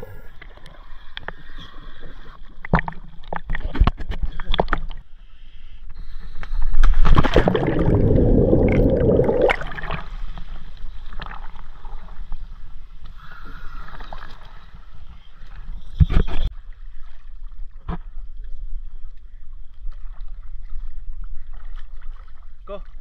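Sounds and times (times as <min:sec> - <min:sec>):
diver's bubbles gurgling underwater: 0:07.0 - 0:10.2.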